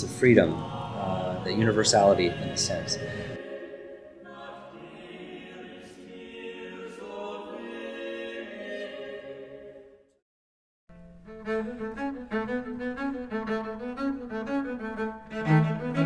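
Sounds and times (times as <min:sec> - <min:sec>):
music: 0:00.0 - 0:10.2, 0:10.9 - 0:16.0
slow classical vocal music: 0:00.0 - 0:10.2.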